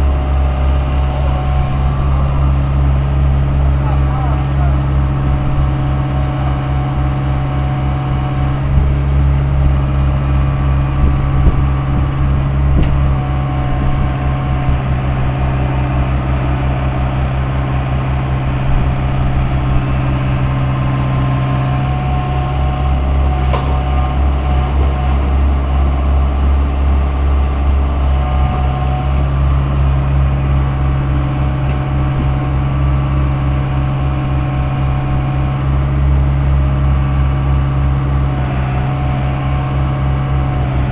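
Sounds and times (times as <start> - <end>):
excavator diesel engine running: 0.0 - 40.9
short knocks: 23.5 - 24.0.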